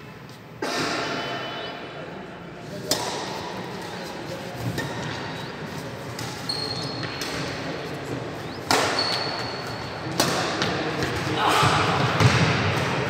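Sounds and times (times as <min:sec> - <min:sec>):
racquets striking shuttlecock: 0:02.8 - 0:11.3
shoes squeaking on wooden court: 0:03.3 - 0:10.1.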